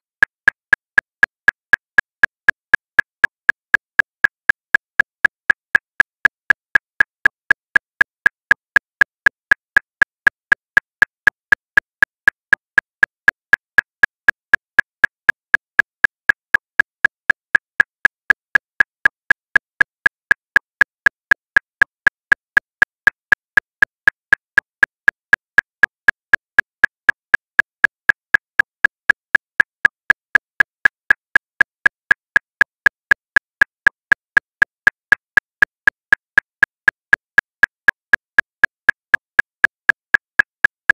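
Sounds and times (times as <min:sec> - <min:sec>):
metronome clicking: 0:21.3 - 0:40.9.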